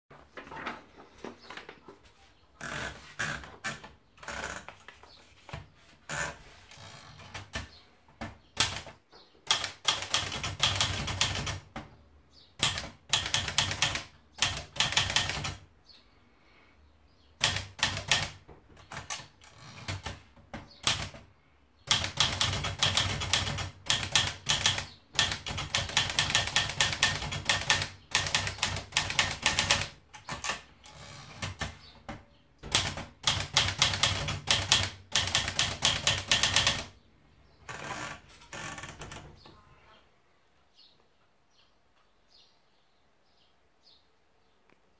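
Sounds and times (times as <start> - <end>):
manual typewriter keys clacking: 8.6 - 11.8, 12.6 - 15.6, 17.4 - 20.2, 20.8 - 21.2, 21.8 - 31.8, 32.6 - 37.0.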